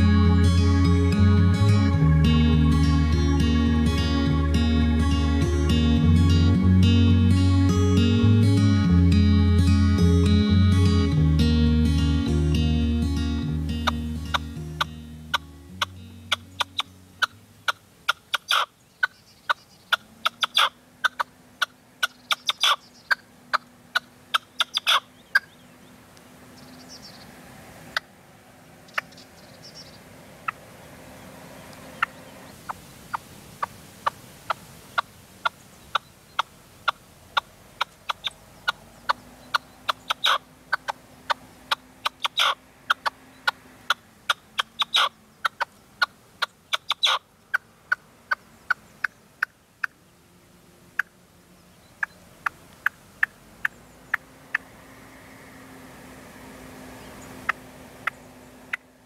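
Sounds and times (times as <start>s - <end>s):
partridge calling: 0.0s - 9.8s, 13.2s - 26.0s, 28.9s - 30.6s, 31.9s - 50.0s.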